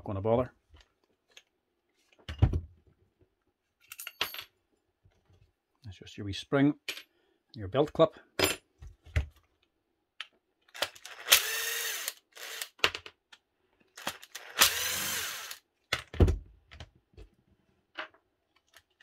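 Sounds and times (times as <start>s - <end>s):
cordless drill motor whine: 11.0s - 12.7s, 14.3s - 15.6s.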